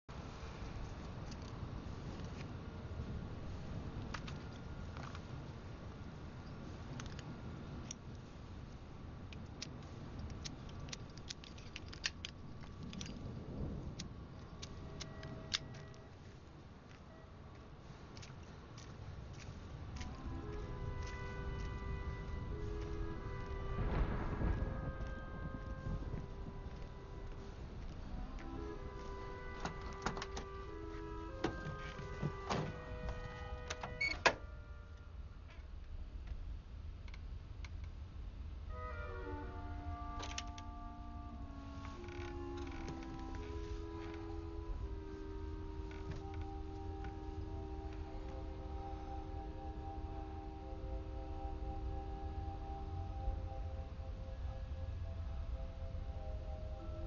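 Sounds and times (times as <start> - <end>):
low rumble: 0.2 - 38.7.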